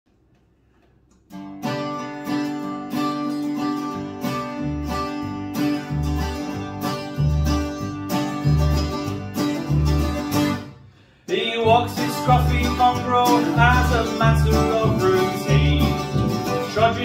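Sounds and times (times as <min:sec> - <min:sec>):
acoustic guitar strumming: 0:01.3 - 0:17.0
mandolin strumming chords: 0:01.3 - 0:17.0
plucked double bass: 0:03.9 - 0:10.7, 0:11.6 - 0:17.0.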